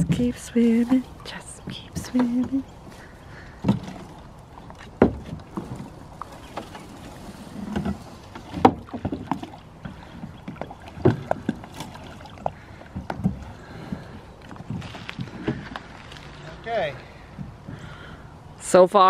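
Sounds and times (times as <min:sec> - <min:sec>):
boots knocking on boat hull: 0:03.6 - 0:04.2, 0:04.8 - 0:06.8
wooden paddle knocking hull: 0:03.6 - 0:06.9, 0:07.6 - 0:15.8.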